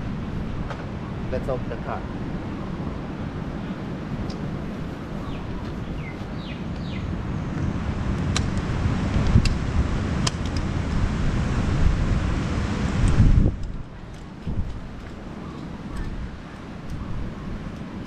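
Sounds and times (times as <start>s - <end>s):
road noise: 0.0s - 18.0s
wind rumbling on microphone: 0.0s - 18.0s
sharp clicks: 8.2s - 9.6s.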